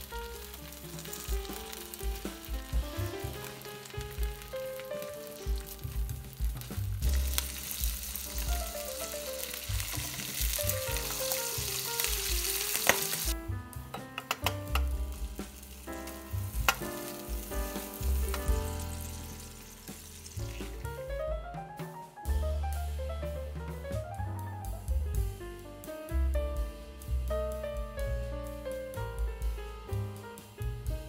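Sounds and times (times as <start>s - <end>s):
food sizzling in oil: 0.0s - 13.4s, 14.4s - 21.0s
light background music: 0.0s - 31.0s.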